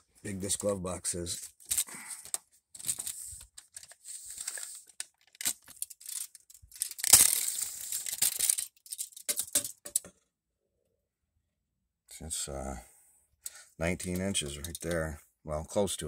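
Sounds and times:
rustling and scraping: 1.3 - 10.1.

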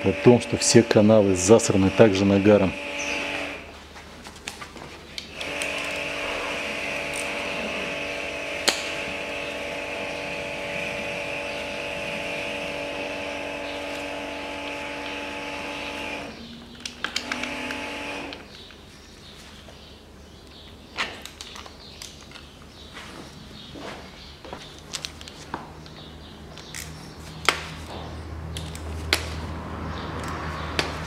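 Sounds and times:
electric power tool motor: 0.0 - 3.7, 5.3 - 16.4, 17.0 - 18.5.

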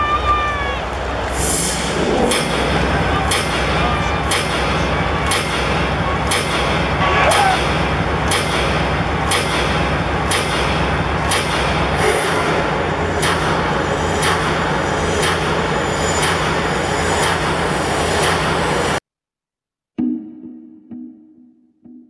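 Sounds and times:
large stadium crowd: 0.0 - 19.0
sharp hits: 1.4 - 19.0.

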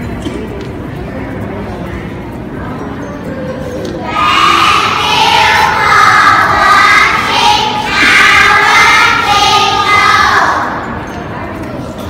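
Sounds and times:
young children singing: 4.0 - 11.2.

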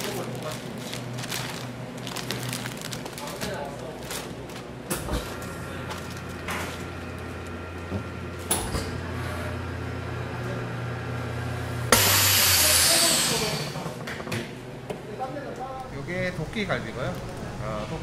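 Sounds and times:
vacuum pump humming: 0.0 - 18.0
loud hiss of air venting: 11.9 - 13.9.

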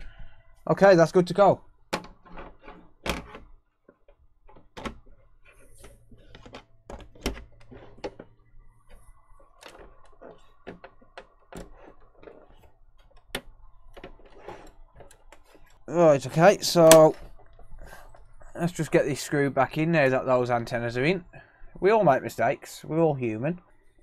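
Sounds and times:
plastic cover clicking and knocking: 1.9 - 9.0.

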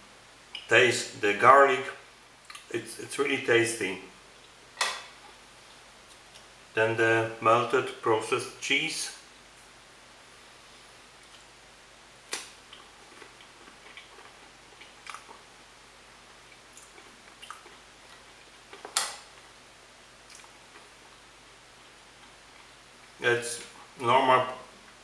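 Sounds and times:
mouth eating sounds: 12.6 - 15.5, 16.4 - 18.8.

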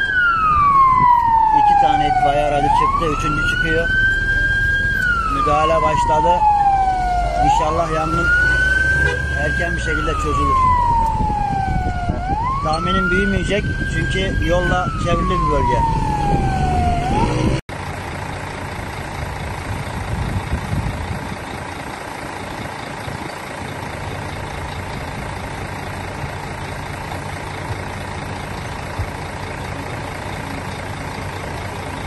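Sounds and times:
siren wailing: 0.0 - 17.6
fire truck engine running: 0.0 - 32.0.

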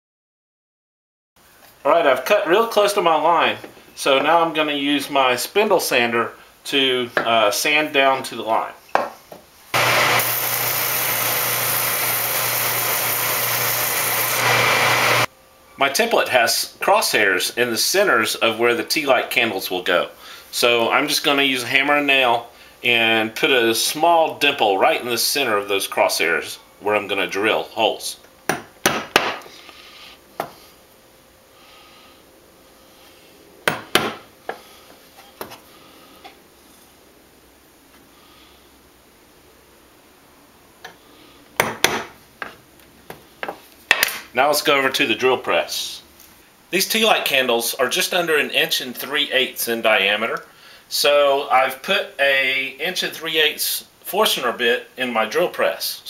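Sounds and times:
spindle sander grinding wood: 9.8 - 15.3.

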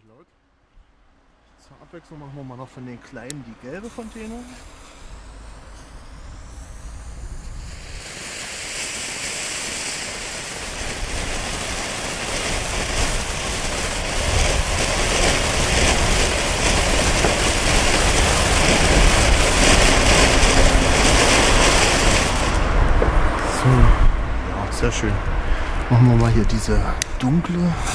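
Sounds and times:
firework fountain hissing: 3.6 - 24.4.

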